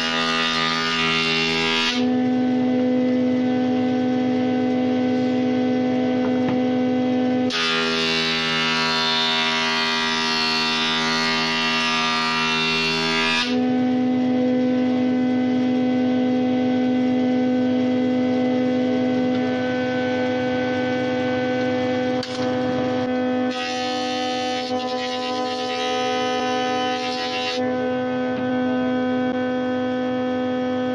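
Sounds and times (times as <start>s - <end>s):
board cutting noise: 0.0s - 2.5s, 7.4s - 15.9s, 19.1s - 30.9s
jointer-planer humming: 0.0s - 30.9s.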